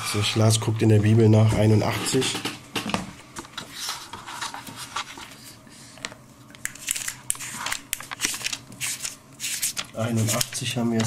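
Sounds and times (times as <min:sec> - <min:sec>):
pages being leafed through: 0:03.4 - 0:06.0, 0:06.6 - 0:10.7.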